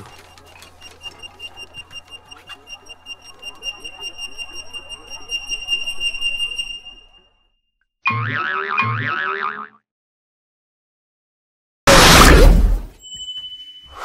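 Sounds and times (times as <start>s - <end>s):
rapid high electronic beeping: 0.0s - 7.3s.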